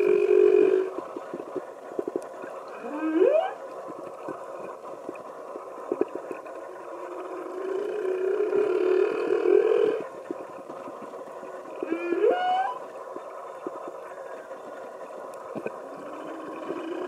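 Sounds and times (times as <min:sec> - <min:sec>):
whale upsweep call: 0:00.0 - 0:00.9, 0:02.7 - 0:03.6, 0:11.8 - 0:12.9
long low whale call: 0:00.0 - 0:01.0, 0:02.7 - 0:03.6, 0:06.9 - 0:10.1, 0:11.7 - 0:12.9, 0:15.9 - 0:17.0.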